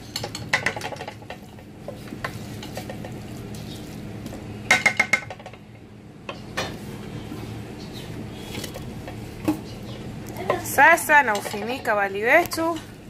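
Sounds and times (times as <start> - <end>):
steady low hum: 0.0 - 13.0
utensil clinking against pot: 11.0 - 13.0.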